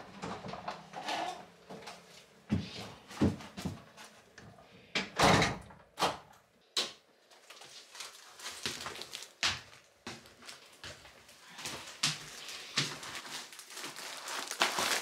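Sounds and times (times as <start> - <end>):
door opening and shutting: 5.0 - 6.3.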